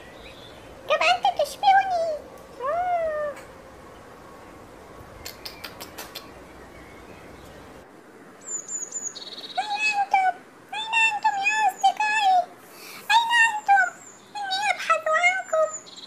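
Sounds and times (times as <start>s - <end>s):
faint hiss: 2.3s - 14.4s
animal clicks: 5.2s - 6.4s.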